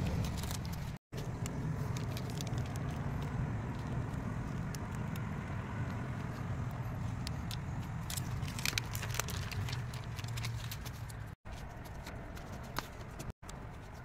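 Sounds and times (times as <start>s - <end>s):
plastic film crackling: 8.0s - 11.3s.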